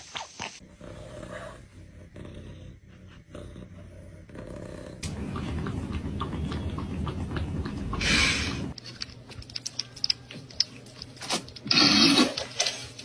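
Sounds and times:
cat purring: 0:00.6 - 0:08.7.

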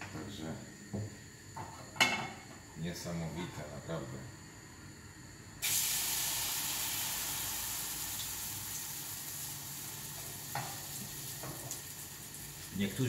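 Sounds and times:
batter sizzling in hot oil: 0:05.6 - 0:13.0.

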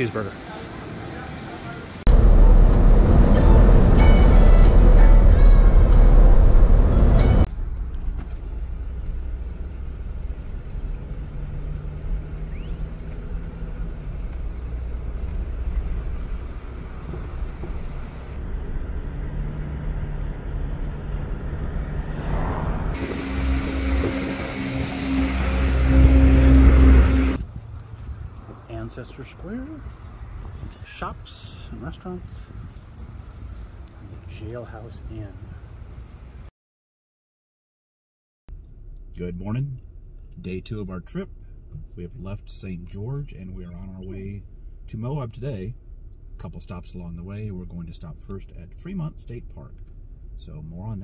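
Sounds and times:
vehicle engine close by: 0:00.0 - 0:30.8
road noise at highway speed: 0:00.0 - 0:36.5, 0:38.5 - 0:51.0
traffic engine hum: 0:00.0 - 0:36.5, 0:38.5 - 0:51.0.

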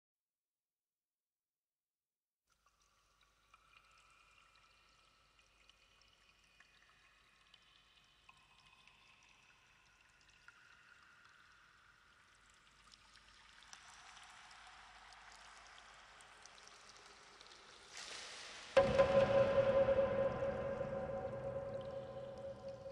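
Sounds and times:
trickling pouring water: 0:02.5 - 0:22.9
water drips: 0:02.5 - 0:22.9
soft held tones: 0:18.8 - 0:22.9.

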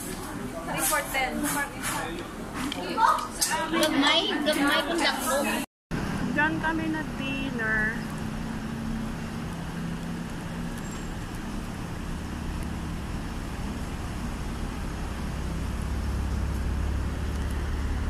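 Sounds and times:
road traffic hum: 0:00.0 - 0:18.0
low engine rumble: 0:05.4 - 0:18.0.

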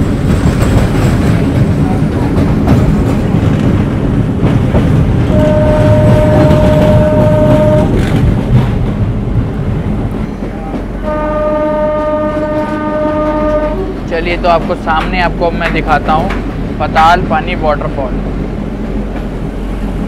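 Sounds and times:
train rumble and wheel clatter: 0:00.0 - 0:20.0
locomotive horn blast: 0:05.3 - 0:08.0, 0:11.0 - 0:14.0.

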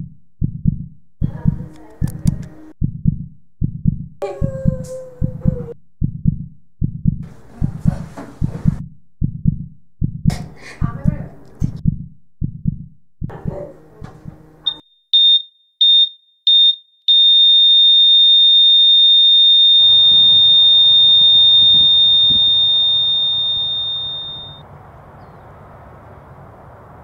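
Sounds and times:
heart monitor beeping: 0:14.7 - 0:24.6
high flatline tone: 0:17.6 - 0:24.6.

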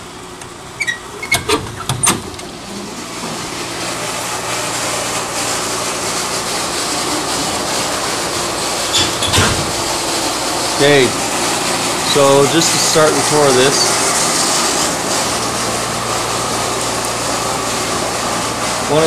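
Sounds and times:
water pump rushing: 0:00.0 - 0:19.0
flowing water: 0:01.1 - 0:19.0.

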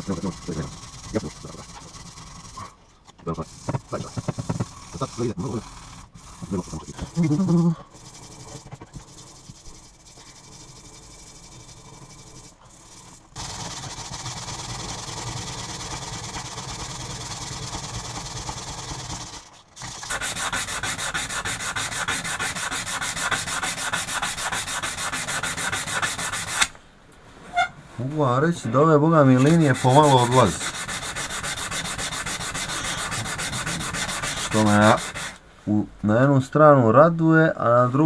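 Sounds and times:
sandpaper rubbing on steel: 0:00.0 - 0:02.7, 0:03.3 - 0:10.4, 0:20.0 - 0:26.7, 0:29.3 - 0:35.4.

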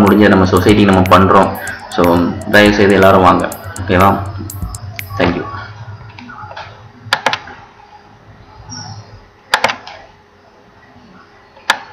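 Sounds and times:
faint murmur of voices: 0:00.0 - 0:11.9
sharp clicks: 0:00.6 - 0:05.2.

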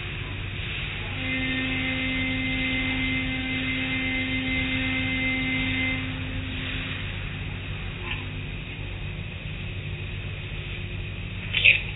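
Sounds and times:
water spraying: 0:00.0 - 0:08.0
car wash machinery running: 0:00.0 - 0:11.9
steady electric hum: 0:00.0 - 0:11.9.

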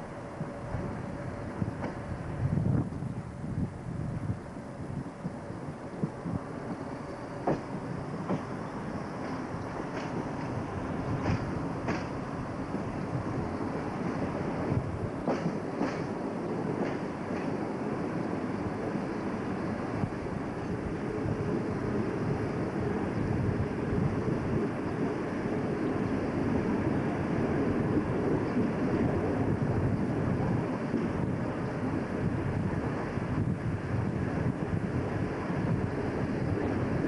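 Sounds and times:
locomotive engine and wheels rumbling: 0:00.0 - 0:37.0
wheels clicking over rail joints: 0:06.2 - 0:18.1.

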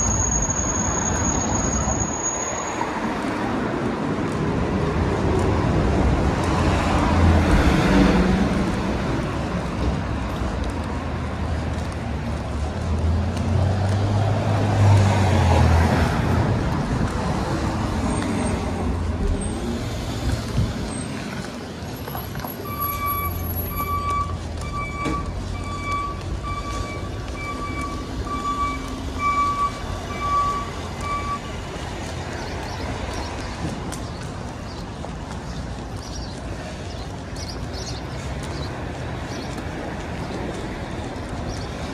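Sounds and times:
road noise: 0:00.0 - 0:41.9
electronic beeps: 0:22.7 - 0:31.5.

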